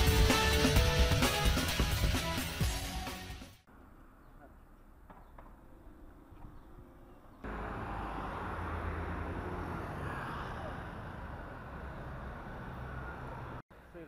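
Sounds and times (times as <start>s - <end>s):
road and wind noise: 3.7s - 13.9s.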